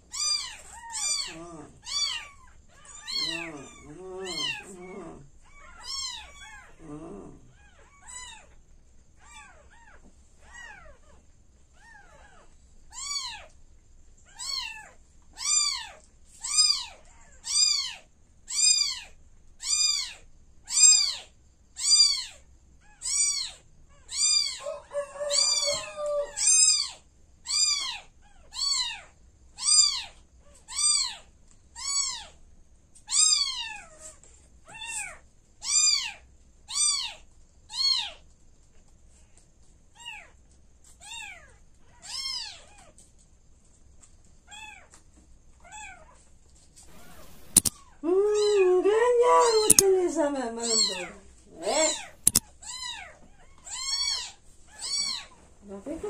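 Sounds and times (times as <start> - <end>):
kittens mewing: 0.1 - 8.5, 23.0 - 30.1, 46.9 - 50.0, 50.6 - 53.1.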